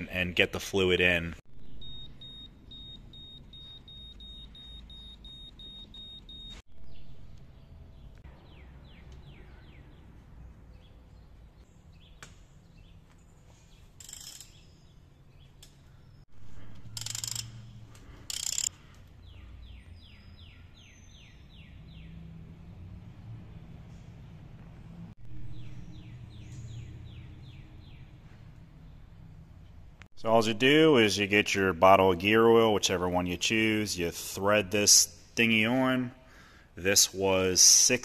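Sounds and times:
high electronic beep: 1.6 - 6.6
ratchet clicking: 14.0 - 14.6, 16.9 - 18.8.

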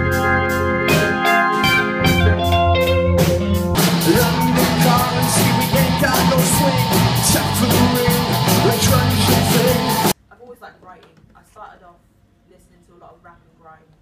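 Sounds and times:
electric organ chords: 0.0 - 10.2
rock band with electric guitars: 0.0 - 10.2
drum beat: 0.8 - 10.2.

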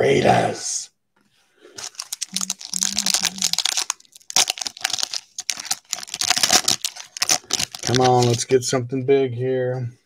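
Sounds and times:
plastic wrapper tearing and crinkling: 1.7 - 8.5.

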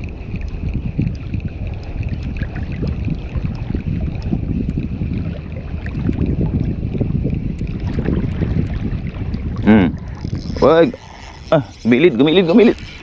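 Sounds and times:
wind noise on microphone: 0.0 - 13.0.

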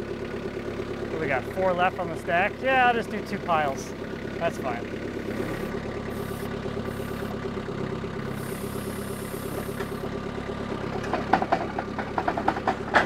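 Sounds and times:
skid steer engine running: 0.0 - 13.0
metal clanks and knocks: 10.9 - 13.0.

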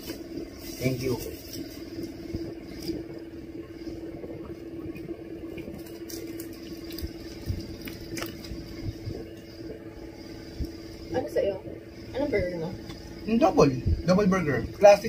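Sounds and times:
low hum: 0.0 - 15.0
wet chewing: 4.9 - 9.8.

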